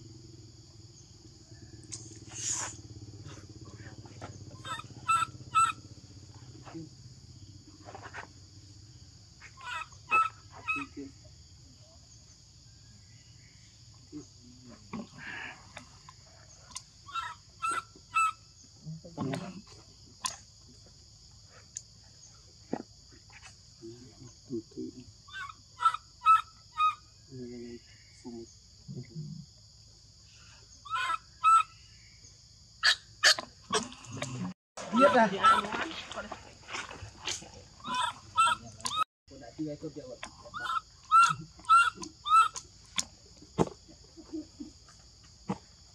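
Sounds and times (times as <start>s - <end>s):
baby monkey crying: 4.6s - 5.8s, 9.6s - 11.0s, 17.1s - 18.4s, 25.3s - 27.0s, 30.9s - 31.7s, 34.9s - 35.8s, 37.8s - 39.0s, 40.5s - 42.6s
low grunts: 33.7s - 35.0s.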